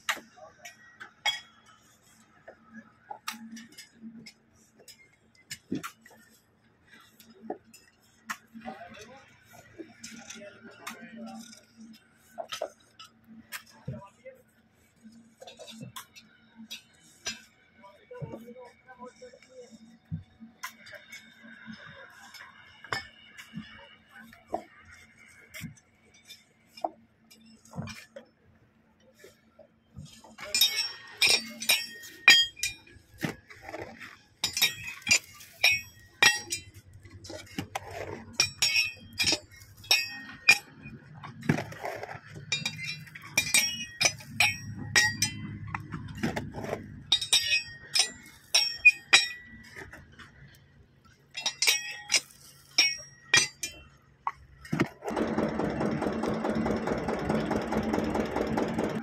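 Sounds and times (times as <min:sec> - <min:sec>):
metal clinking: 0:30.2 - 0:50.3, 0:51.3 - 0:55.0.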